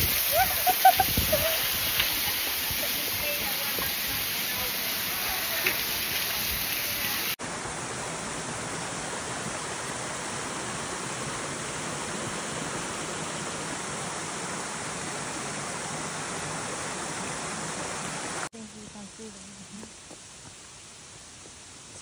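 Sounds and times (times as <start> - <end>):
waterfall rushing: 0.0 - 18.5.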